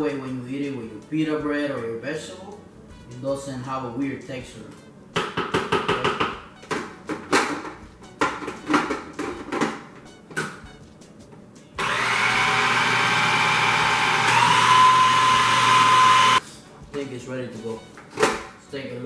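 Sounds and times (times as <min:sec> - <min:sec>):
food processor motor whine: 0:11.8 - 0:16.4.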